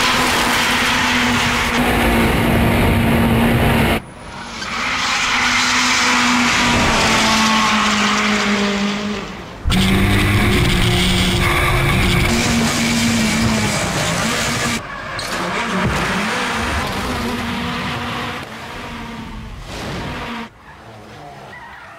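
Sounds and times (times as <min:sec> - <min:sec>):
rally car engine at high revs: 0:00.0 - 0:21.2
tyres squealing and skidding: 0:04.2 - 0:18.2, 0:20.4 - 0:21.9.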